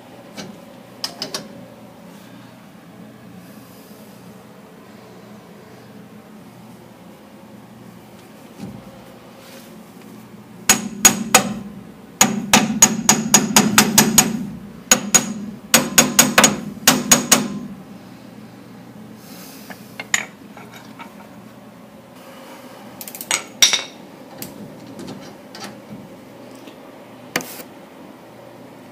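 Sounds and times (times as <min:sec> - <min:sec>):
hammer striking steel: 0:10.7 - 0:11.6, 0:12.2 - 0:17.7.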